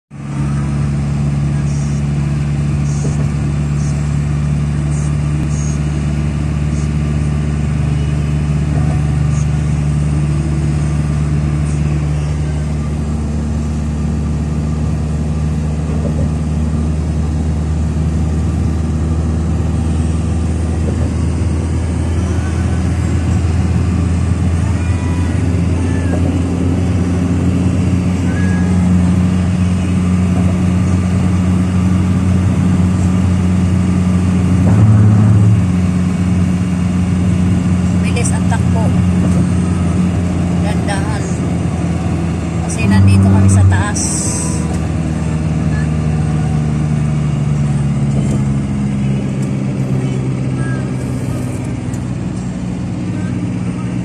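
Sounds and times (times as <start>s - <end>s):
road noise: 0.1s - 54.0s
truck engine drone: 0.1s - 54.0s.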